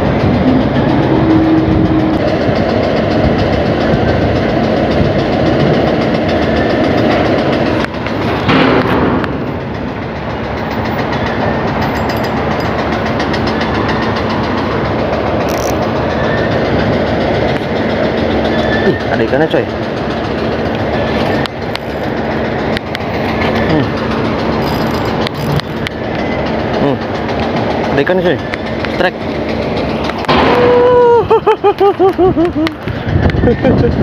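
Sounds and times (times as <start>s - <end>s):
wind buffeting microphone: 32.3s - 34.0s.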